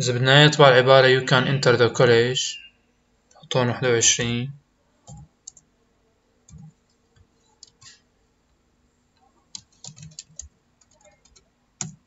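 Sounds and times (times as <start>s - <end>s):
computer keyboard keystrokes: 5.1s - 5.7s, 9.5s - 12.0s.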